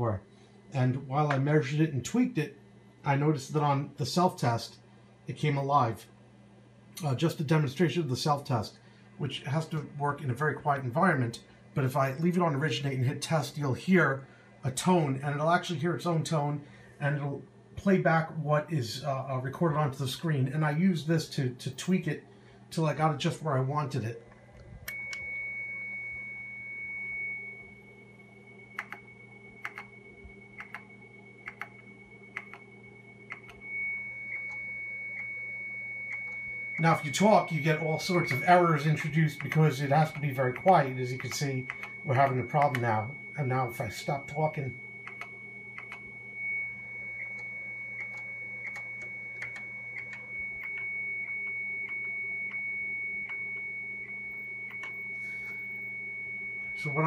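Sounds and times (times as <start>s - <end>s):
low hum: 0.0s - 57.0s
high-pitched modem tone: 22.8s - 57.0s
faint irregular clicks: 28.8s - 29.9s, 30.6s - 32.7s, 33.3s - 33.6s, 40.6s - 41.9s, 45.0s - 46.1s, 47.2s - 52.6s, 54.7s - 55.0s.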